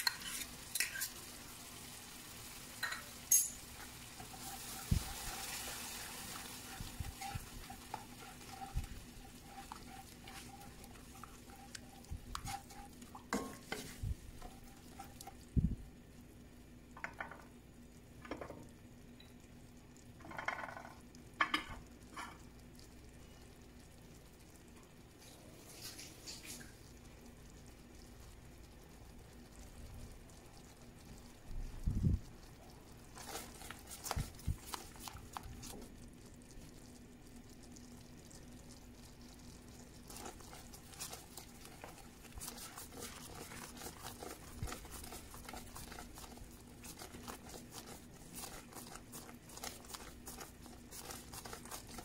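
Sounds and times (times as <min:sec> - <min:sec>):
wooden spoon stirring: 0:00.0 - 0:16.0, 0:29.1 - 0:52.0
cream sauce bubbling and popping: 0:00.0 - 0:52.0
faint steady hum: 0:00.0 - 0:52.0.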